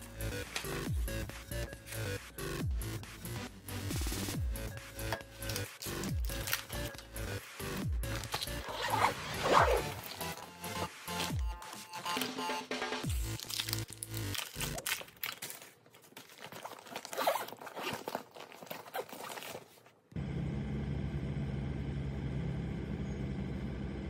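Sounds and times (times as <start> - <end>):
zipper closing: 8.0 - 11.4, 16.4 - 19.8
lunch bag rustling: 8.0 - 12.4, 13.1 - 20.0.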